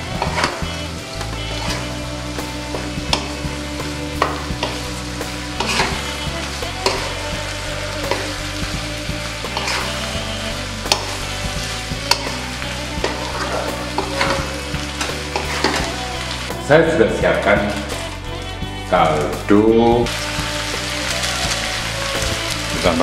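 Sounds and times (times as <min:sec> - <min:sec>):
food sizzling in a wok: 0:00.0 - 0:23.0
spatula scraping and knocking pan: 0:04.1 - 0:05.0, 0:05.6 - 0:06.2, 0:09.5 - 0:10.0, 0:13.0 - 0:16.0.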